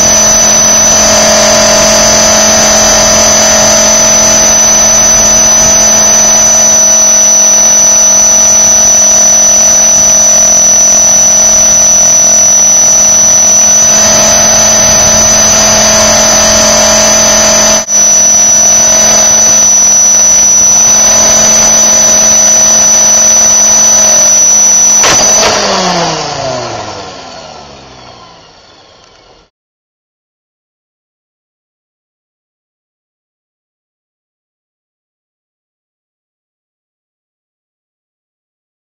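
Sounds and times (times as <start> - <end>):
helicopter rotor high whine: 0.0 - 29.5.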